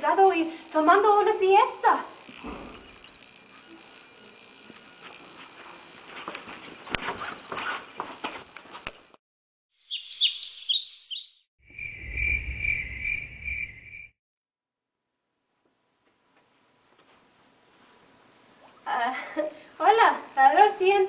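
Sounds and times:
crickets chirping: 0:09.8 - 0:14.1
quick high bird chirps: 0:09.8 - 0:14.1.

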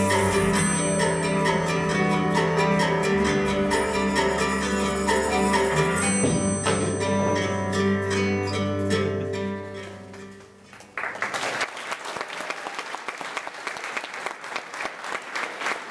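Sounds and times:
music: 0:00.0 - 0:11.2
audience applauding: 0:10.7 - 0:15.9.

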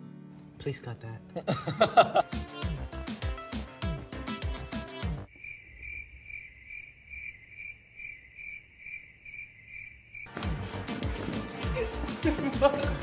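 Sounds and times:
music: 0:00.0 - 0:05.3, 0:10.3 - 0:13.0
cricket chirp sound effect: 0:05.3 - 0:10.3.

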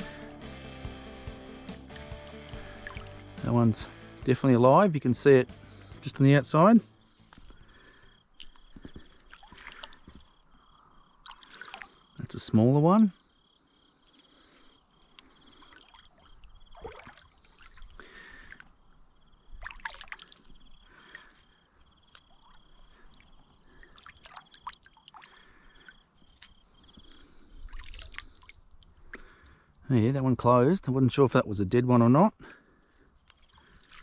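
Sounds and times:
shallow water splashing: 0:01.9 - 0:03.5, 0:07.2 - 0:12.2, 0:15.1 - 0:18.7, 0:19.4 - 0:29.4, 0:33.2 - 0:34.0.

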